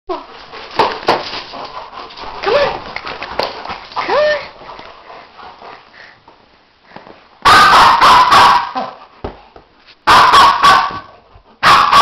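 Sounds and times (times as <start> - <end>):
small dog barking: 7.4 - 9.0, 10.1 - 12.0.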